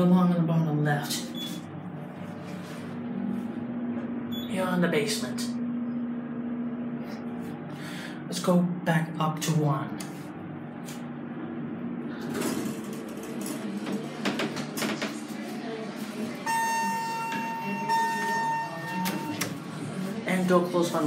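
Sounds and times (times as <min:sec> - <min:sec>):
elevator doors moving: 0:12.1 - 0:20.1.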